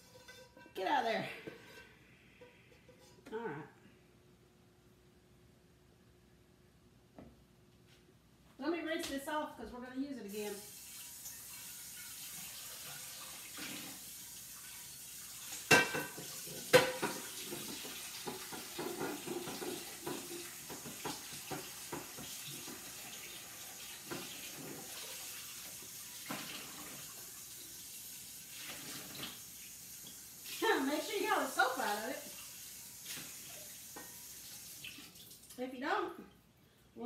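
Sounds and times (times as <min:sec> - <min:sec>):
tap running into sink: 0:15.6 - 0:25.3.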